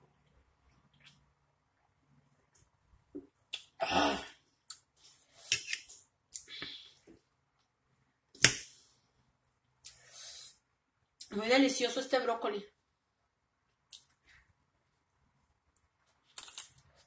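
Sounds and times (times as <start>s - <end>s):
eating smacks and clicks: 16.4s - 16.8s.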